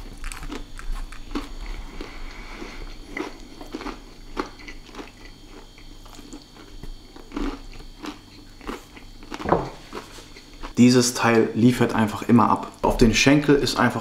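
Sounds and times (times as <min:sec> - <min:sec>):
person chewing crunchy food: 0:00.0 - 0:10.8.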